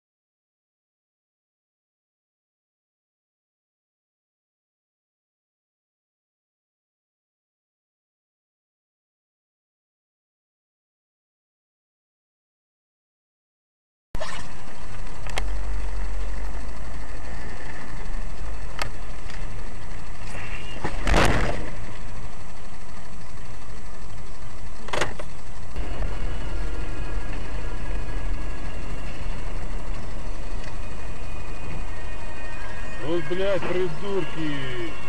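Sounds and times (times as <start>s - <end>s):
road and engine rumble: 14.2s - 35.0s.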